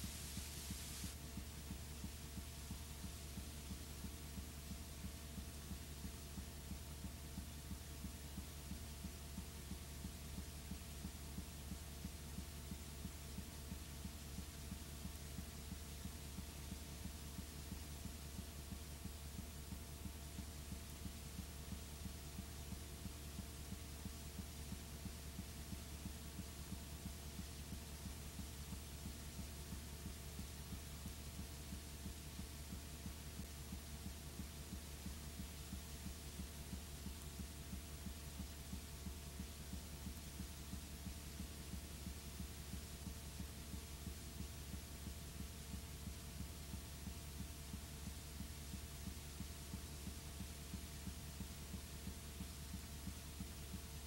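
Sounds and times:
even hiss: 0:00.0 - 0:06.1
low electrical hum: 0:00.0 - 0:54.0.

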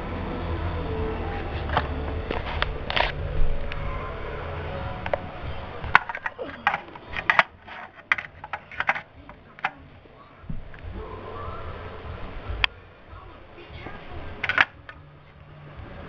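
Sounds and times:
low rumble: 0:00.0 - 0:16.0
plastic model train clicks: 0:14.4 - 0:14.8.

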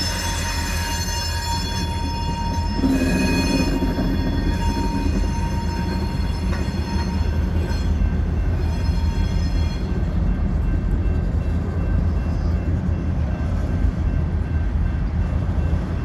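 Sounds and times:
wheel-on-rail rumble: 0:00.0 - 0:09.2
high-pitched squeal: 0:00.0 - 0:09.8
diesel locomotive engine rumble: 0:00.0 - 0:16.0.

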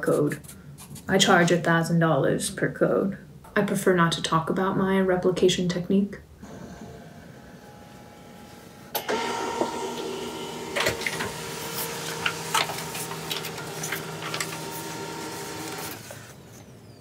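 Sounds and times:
printer motor whine: 0:06.4 - 0:16.6
printer clicks and clunks: 0:08.9 - 0:16.3.

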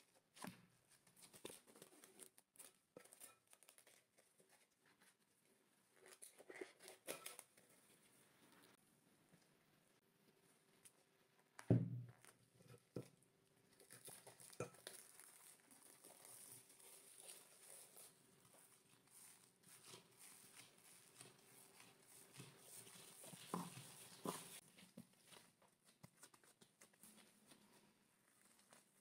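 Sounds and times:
thud: 0:11.7 - 0:12.2.

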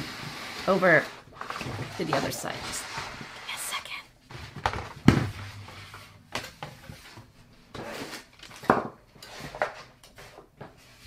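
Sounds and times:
boxes scraping on a desk: 0:00.0 - 0:03.5, 0:06.8 - 0:11.0
boxes knocking on a desk: 0:04.6 - 0:06.4.

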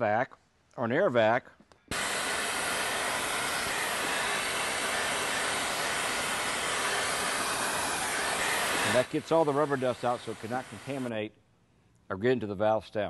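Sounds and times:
vacuum sucking up dust: 0:01.9 - 0:11.1.

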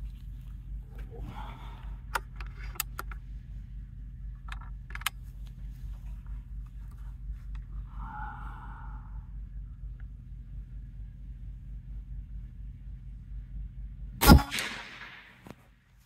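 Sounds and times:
low rumble: 0:00.0 - 0:16.0
air rifle metallic clicks: 0:02.1 - 0:03.2, 0:04.4 - 0:05.2.

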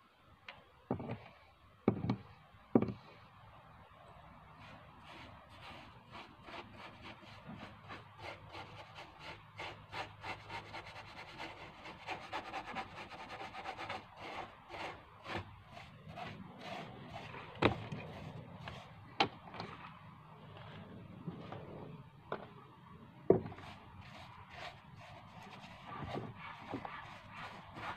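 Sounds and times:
paintbrush scrubbing on wood: 0:04.6 - 0:19.0, 0:23.5 - 0:27.9.

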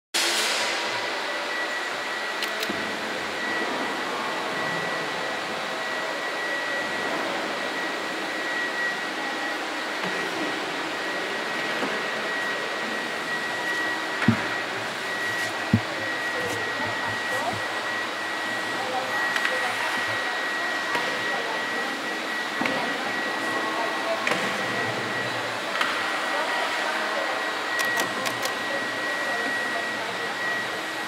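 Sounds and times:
vacuum cleaner running: 0:00.2 - 0:31.0
short thumps: 0:14.2 - 0:17.7.

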